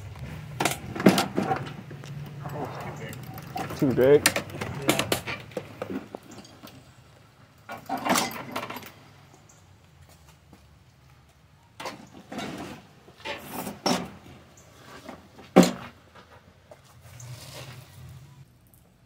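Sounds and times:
metal tools clattering: 0:00.6 - 0:06.9, 0:07.6 - 0:09.0.

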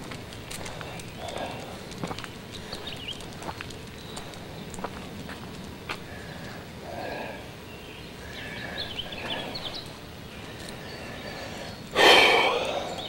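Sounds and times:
faint bird chirps: 0:06.2 - 0:13.0.

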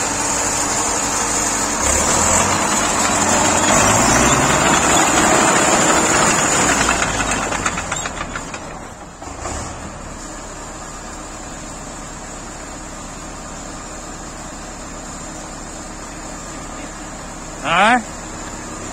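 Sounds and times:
tractor diesel engine running: 0:00.0 - 0:18.9.

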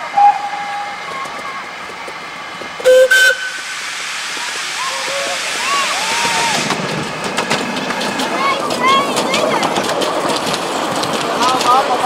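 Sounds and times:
steam locomotive whistle blasts: 0:00.0 - 0:01.6, 0:02.8 - 0:03.8
steam locomotive running: 0:00.0 - 0:12.0.

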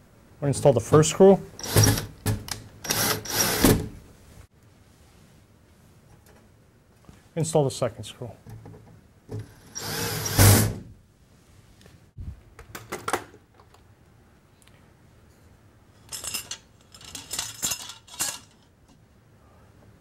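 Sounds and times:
cordless drill driving a screw: 0:01.6 - 0:02.1, 0:02.8 - 0:03.8, 0:09.7 - 0:10.7.

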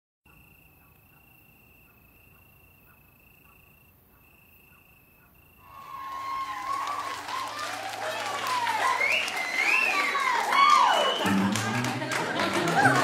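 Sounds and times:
crickets chirping: 0:00.3 - 0:07.4.

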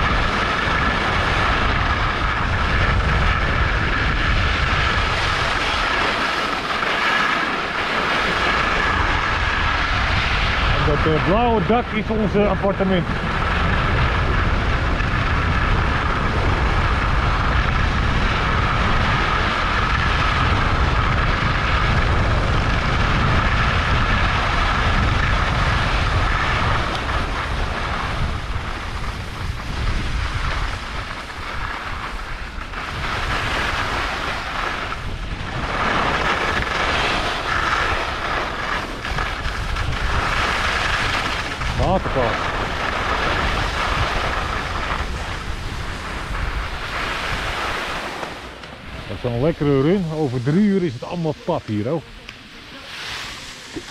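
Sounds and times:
skis hissing over snow: 0:00.0 - 0:53.9
wind buffeting microphone: 0:00.0 - 0:53.9.

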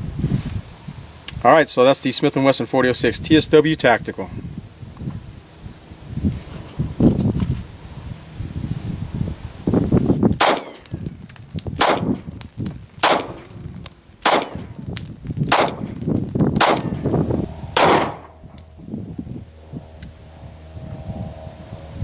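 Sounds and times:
pistol shots: 0:10.4 - 0:10.9, 0:11.8 - 0:12.2, 0:13.0 - 0:13.6, 0:14.2 - 0:14.8, 0:15.5 - 0:16.0, 0:16.6 - 0:17.0, 0:17.8 - 0:18.3.

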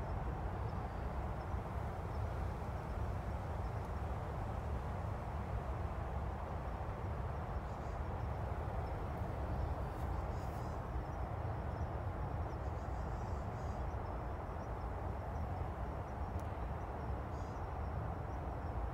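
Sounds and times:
faint insect trill: 0:07.0 - 0:18.9.

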